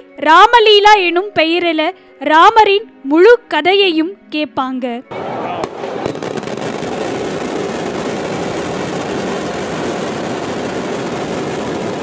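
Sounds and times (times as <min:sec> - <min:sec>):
firecrackers going off: 0:05.1 - 0:12.0.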